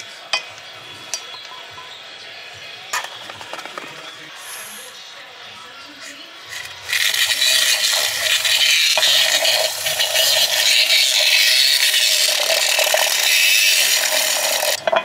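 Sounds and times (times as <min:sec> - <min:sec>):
milk frother whirring: 0:06.4 - 0:15.0.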